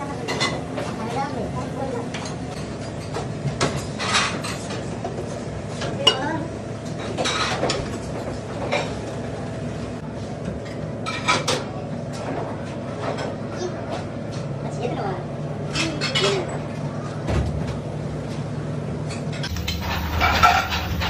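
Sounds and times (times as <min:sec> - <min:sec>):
dishes and utensils clinking: 0:00.2 - 0:01.0, 0:02.1 - 0:05.2, 0:06.9 - 0:09.0, 0:10.6 - 0:12.4, 0:15.7 - 0:16.6, 0:19.1 - 0:21.0
steady hum: 0:19.4 - 0:21.0.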